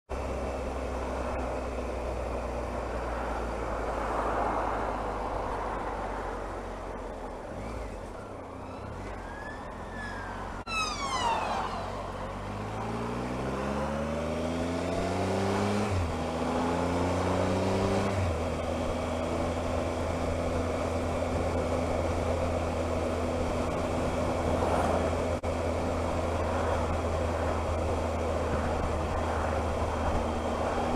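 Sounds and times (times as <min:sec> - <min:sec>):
ambulance siren wailing: 0:08.4 - 0:12.3
motorcycle engine revving: 0:09.0 - 0:30.9.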